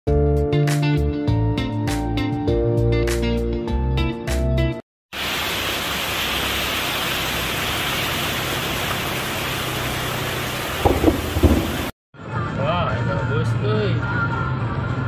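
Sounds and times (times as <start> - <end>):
heavy rain pouring: 5.1 - 11.9
short knocks: 10.8 - 11.9.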